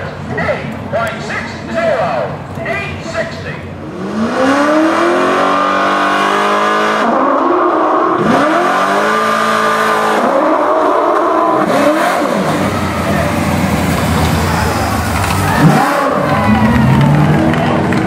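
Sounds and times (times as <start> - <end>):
truck engine revving: 3.7 - 18.0.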